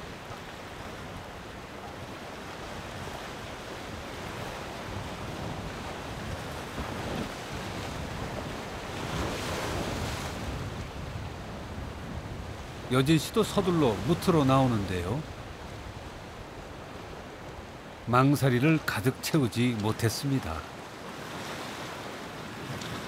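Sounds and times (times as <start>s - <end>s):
wind gusting across microphone: 0.0s - 18.2s
rough sea waves: 0.0s - 23.0s.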